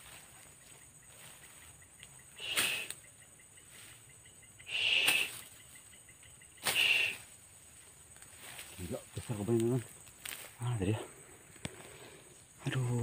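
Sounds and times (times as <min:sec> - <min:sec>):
grass stems rustling: 0:00.0 - 0:03.0, 0:03.6 - 0:04.2, 0:04.8 - 0:12.5
stick swishing through grass: 0:01.1 - 0:03.0, 0:04.7 - 0:05.6, 0:06.6 - 0:07.3.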